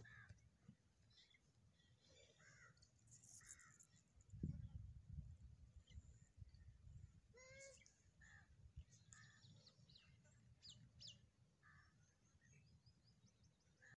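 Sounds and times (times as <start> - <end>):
birds chirping and calling: 0.0 - 4.4, 7.4 - 14.0.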